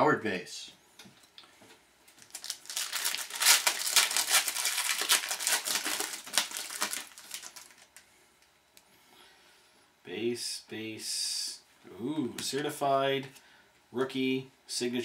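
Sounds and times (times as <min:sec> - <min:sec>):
foil wrapper crinkling: 0:02.1 - 0:08.0.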